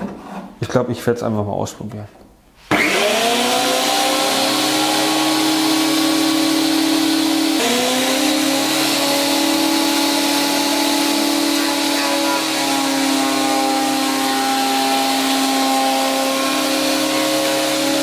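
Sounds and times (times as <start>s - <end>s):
board being planed: 2.7s - 18.0s
planer motor whine: 2.7s - 18.0s.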